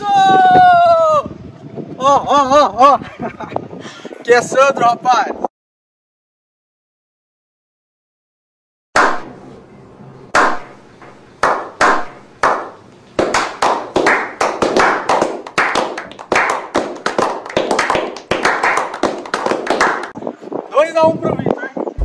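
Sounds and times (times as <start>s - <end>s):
people clapping: 11.4s - 20.2s.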